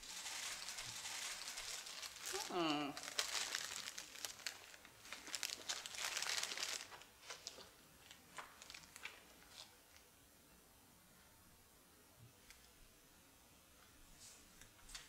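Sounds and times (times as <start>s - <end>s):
cellophane crinkling: 0.0s - 9.8s.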